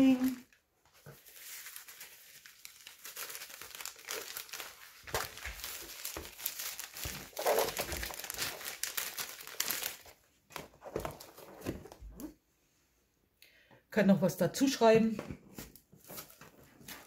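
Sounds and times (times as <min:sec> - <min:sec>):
plastic sleeve crinkling: 0:00.0 - 0:12.3.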